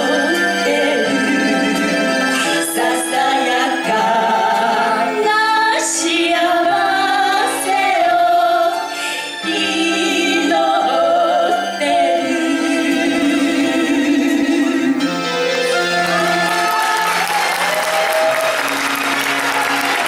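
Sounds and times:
women singing a duet: 0:00.0 - 0:15.2
sustained musical accompaniment: 0:00.0 - 0:20.0.

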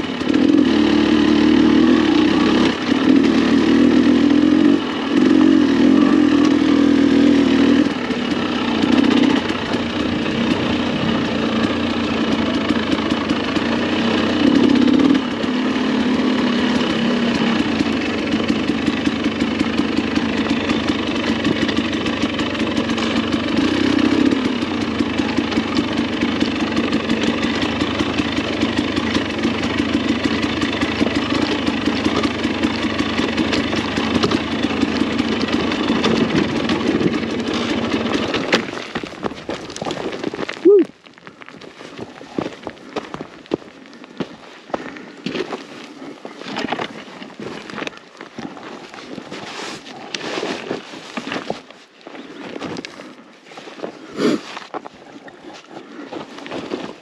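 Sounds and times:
dirt bike engine revving: 0:00.0 - 0:40.2.

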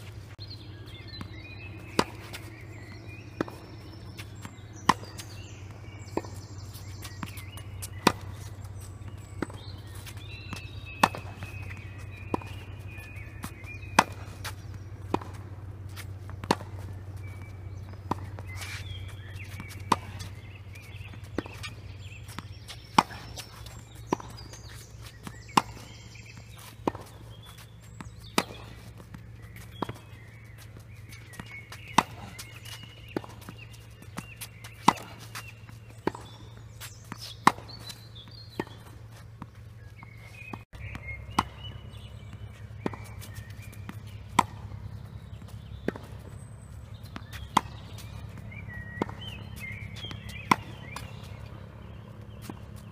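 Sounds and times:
tennis ball hit by rackets: 0:00.0 - 0:52.9
ball bouncing on hard court: 0:01.1 - 0:46.3, 0:47.0 - 0:52.9.

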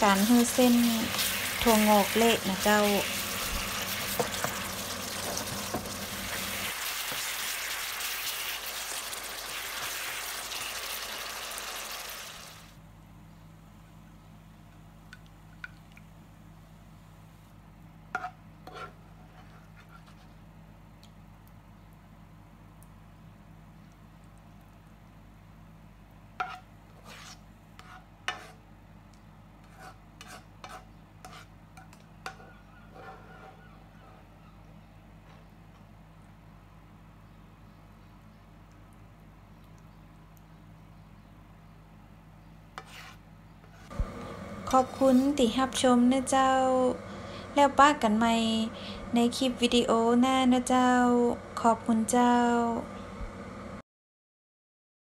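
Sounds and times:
bean sprouts sizzling in a pan: 0:00.0 - 0:12.8
steady low hum: 0:33.9 - 0:53.8.

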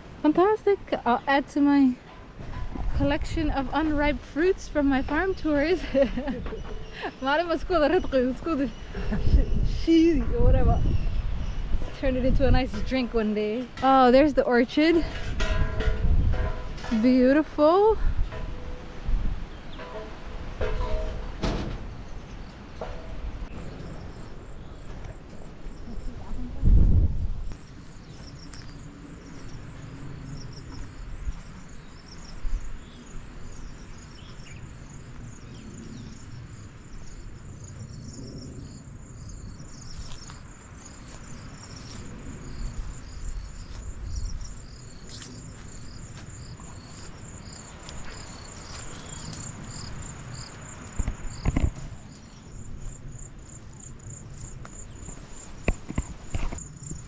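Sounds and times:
insects trilling: 0:27.4 - 0:57.0.

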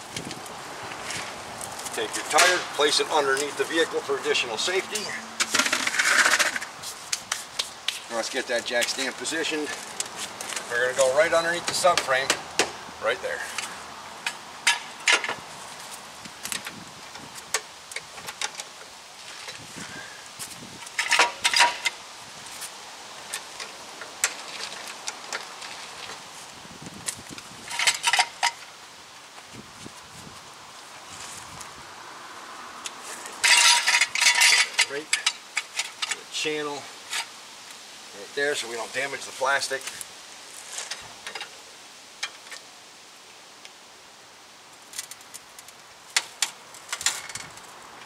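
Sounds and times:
steady background hiss: 0:00.0 - 0:48.0
steel jack stand clanking: 0:33.4 - 0:36.2.

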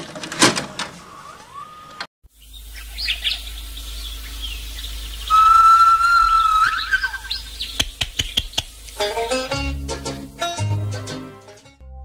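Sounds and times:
birds chirping: 0:00.9 - 0:09.5
long whistled bird note: 0:01.2 - 0:07.8
sharp clicks: 0:07.7 - 0:09.0.

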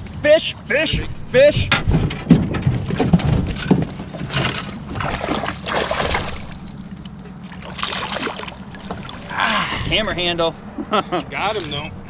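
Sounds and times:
knocking on aluminum boat: 0:00.9 - 0:04.3
water splashing: 0:04.6 - 0:10.5, 0:11.4 - 0:11.9.

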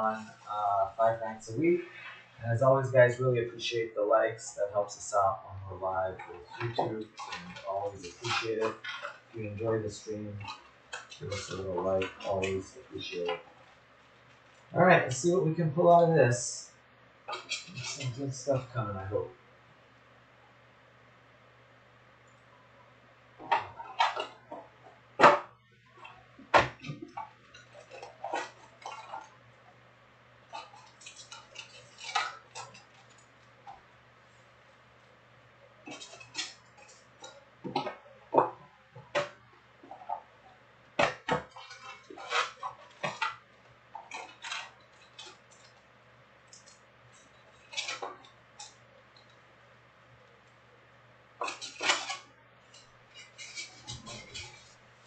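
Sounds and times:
card packs crinkling and tapping: 0:06.4 - 0:09.6, 0:30.5 - 0:33.8, 0:40.9 - 0:45.8
foil wrappers crinkling: 0:30.5 - 0:33.7, 0:41.0 - 0:43.4, 0:44.0 - 0:48.7, 0:51.4 - 0:54.8.

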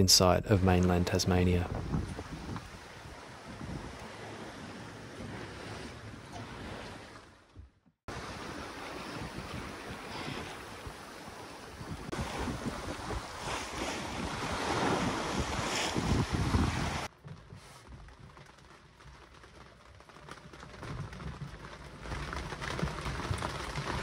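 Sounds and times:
wind and sea rushing: 0:00.0 - 0:17.2
wind buffeting microphone: 0:01.4 - 0:07.1, 0:08.1 - 0:17.1.

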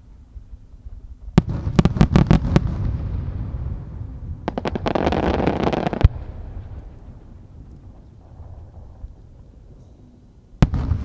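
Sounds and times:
crackling of small firework bursts: 0:00.7 - 0:09.4, 0:10.6 - 0:11.0
firework bangs: 0:01.3 - 0:08.9, 0:10.6 - 0:11.0.

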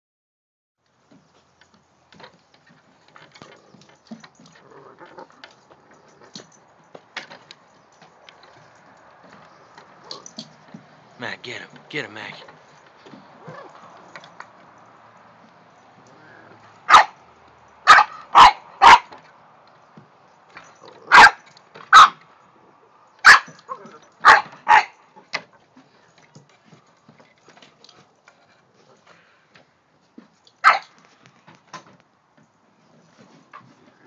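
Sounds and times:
puppy barking: 0:16.8 - 0:17.2, 0:17.8 - 0:19.1, 0:21.1 - 0:22.2, 0:23.2 - 0:25.0, 0:30.6 - 0:31.0.

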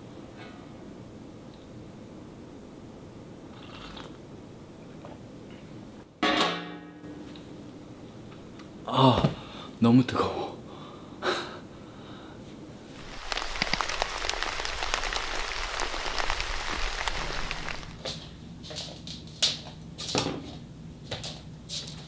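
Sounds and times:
heavy rain pattering: 0:12.8 - 0:18.0.

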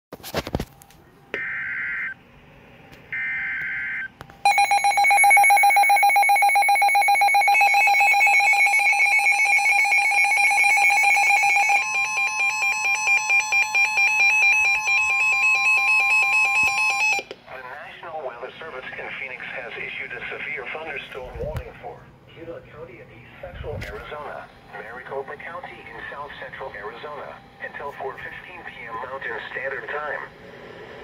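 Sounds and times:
steady alarm tone: 0:03.1 - 0:17.3
rapidly pulsing alert beeps: 0:03.2 - 0:17.2.

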